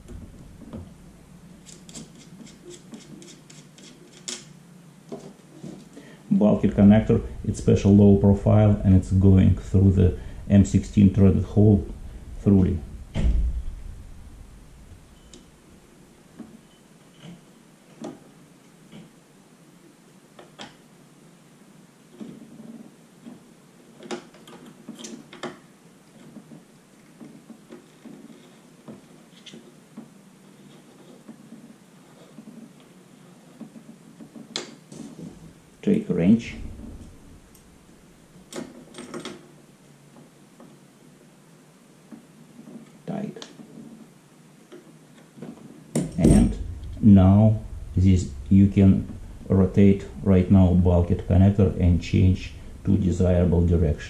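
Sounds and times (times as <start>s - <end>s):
hands rubbing on camera housing: 1.6s - 4.4s.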